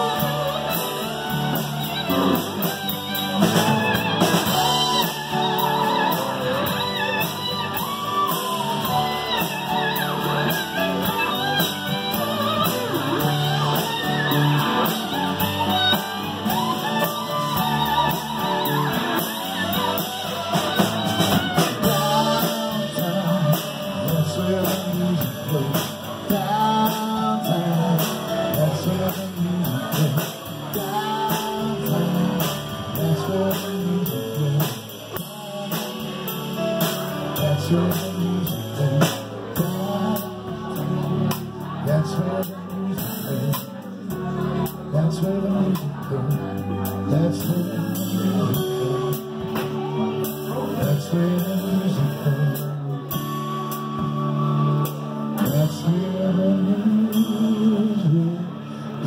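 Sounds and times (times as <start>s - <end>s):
sliding melodic line: 0.0s - 41.9s
live rock band playing: 0.0s - 59.0s.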